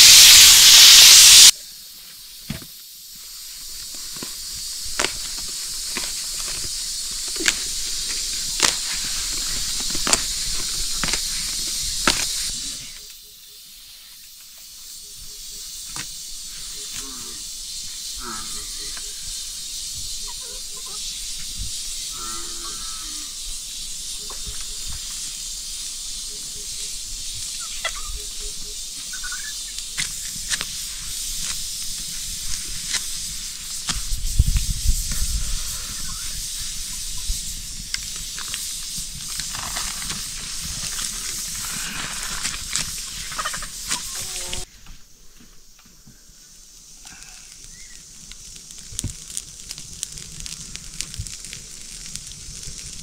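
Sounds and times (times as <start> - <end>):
steady high hiss: 0.0 - 53.0
sharp clicks and crackles: 47.5 - 53.0.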